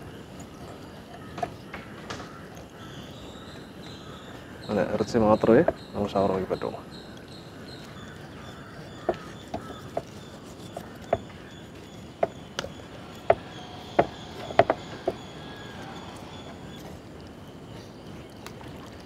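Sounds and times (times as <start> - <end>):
knife chopping on wooden board: 13.2 - 15.2.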